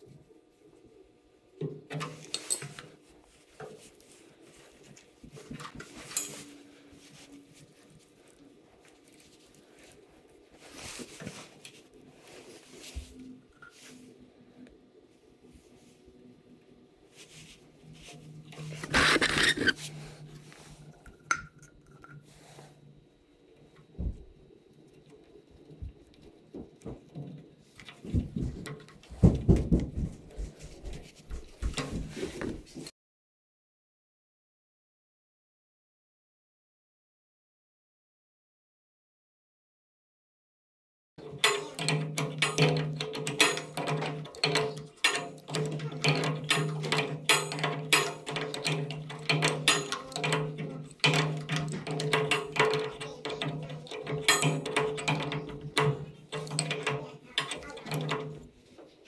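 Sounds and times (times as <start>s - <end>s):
fingers scraping and tapping fitting: 18.8s - 19.8s
wrench clinking on metal fittings: 41.2s - 58.4s.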